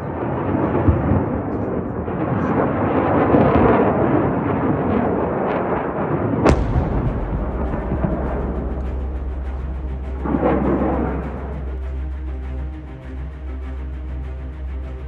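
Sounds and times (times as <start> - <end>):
sharp explosion crack: 6.4 - 12.7
heavy explosion rumble: 6.4 - 13.4
explosion thud: 6.5 - 12.2.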